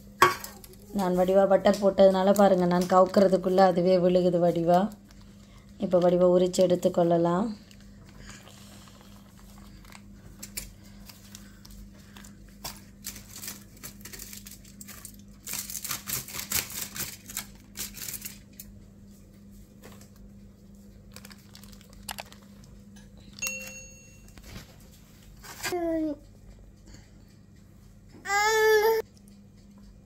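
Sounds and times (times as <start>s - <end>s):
baking paper crinkling and tearing: 8.3s - 18.5s, 21.0s - 22.6s.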